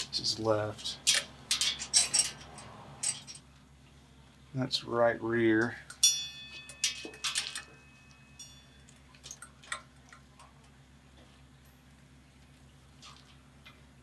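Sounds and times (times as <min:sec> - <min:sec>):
wiring connectors clicking and rustling: 0:00.8 - 0:03.5, 0:05.6 - 0:08.2
sharp metallic clink: 0:05.9 - 0:08.9.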